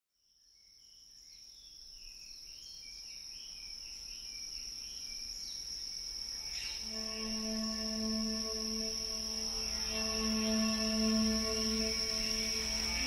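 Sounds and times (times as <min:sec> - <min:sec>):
high-pitched insect drone: 0:04.6 - 0:13.0.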